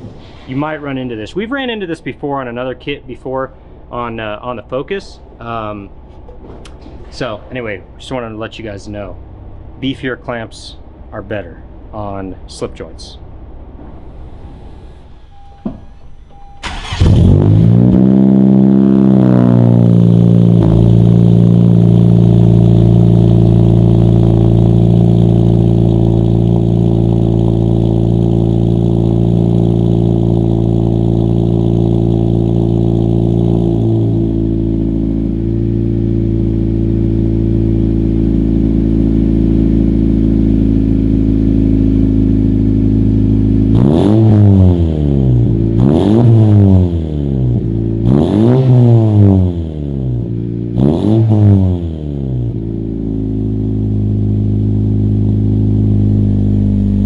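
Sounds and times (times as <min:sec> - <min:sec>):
car engine idling: 0:00.0 - 0:57.0
engine revving: 0:16.3 - 0:57.0.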